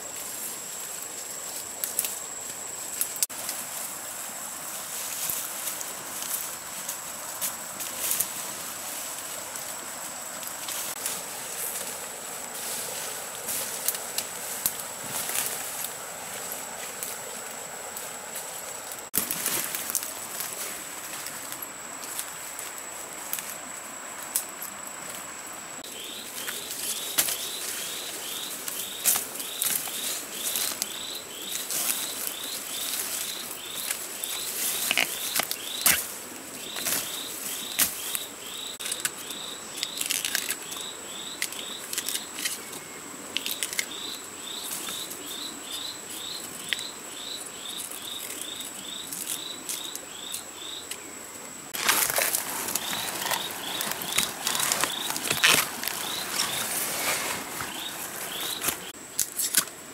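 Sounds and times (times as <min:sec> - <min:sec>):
hands rustling bamboo foliage: 0:00.0 - 0:46.9, 0:47.6 - 0:59.9
crunching rustle of dry leaves: 0:00.0 - 0:51.0, 0:51.6 - 0:59.9
high insect whine: 0:00.0 - 0:59.9
bamboo shoots snapping: 0:38.8 - 0:42.6, 0:43.3 - 0:44.0, 0:51.8 - 0:56.7, 0:57.4 - 0:59.8.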